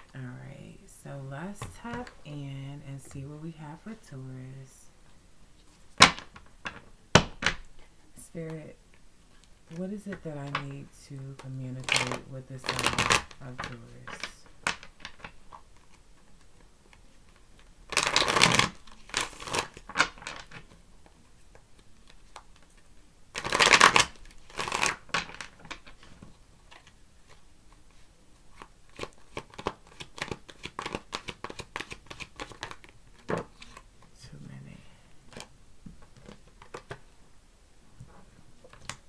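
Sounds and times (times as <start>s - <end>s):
cards being shuffled: 9.2s - 34.2s.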